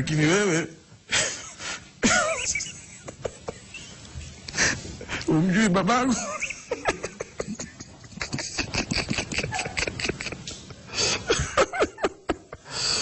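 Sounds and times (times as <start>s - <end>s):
man laughing: 1.1s - 3.9s, 6.0s - 12.7s.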